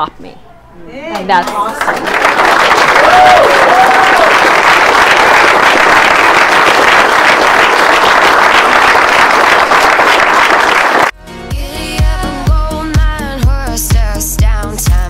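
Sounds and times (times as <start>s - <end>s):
roomful of people applauding: 1.4s - 11.2s.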